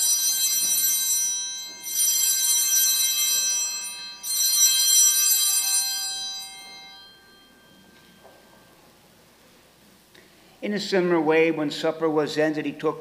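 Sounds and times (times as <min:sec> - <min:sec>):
altar bells ringing: 0:00.0 - 0:09.8.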